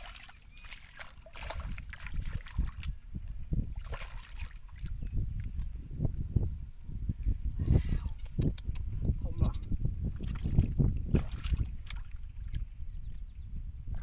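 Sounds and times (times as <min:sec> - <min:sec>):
hands splashing in muddy water: 0:00.0 - 0:02.9, 0:03.8 - 0:05.6, 0:10.2 - 0:12.6.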